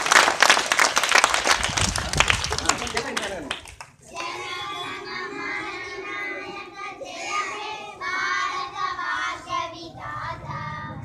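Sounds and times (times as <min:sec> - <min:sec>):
children singing together: 0:04.1 - 0:11.0.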